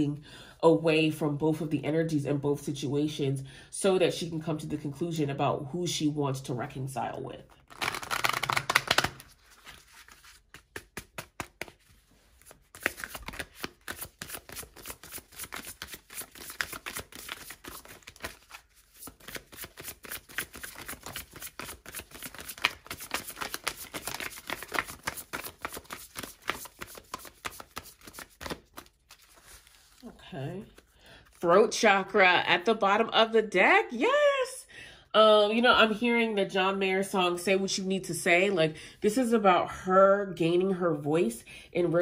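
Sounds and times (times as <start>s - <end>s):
cards being shuffled: 7.5s - 30.0s.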